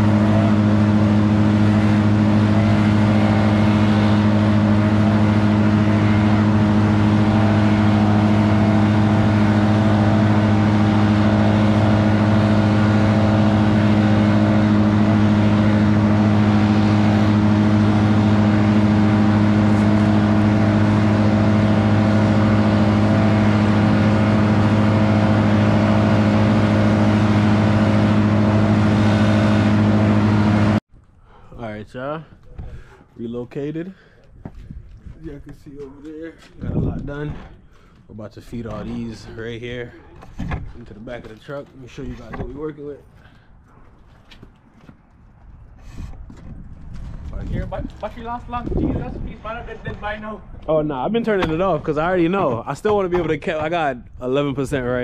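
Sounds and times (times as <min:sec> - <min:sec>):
large engine droning: 0:00.0 - 0:30.8.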